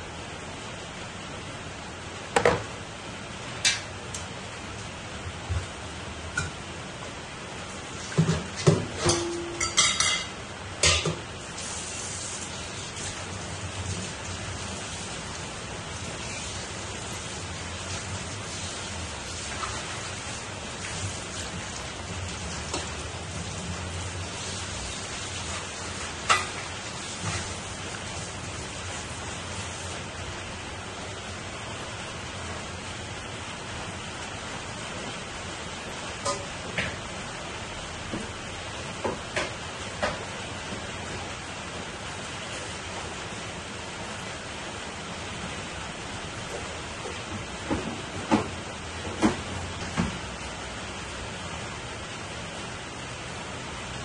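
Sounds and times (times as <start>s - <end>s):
cookware clinks and knocks: 9.0s - 10.3s
soup boiling and bubbling: 9.7s - 54.0s.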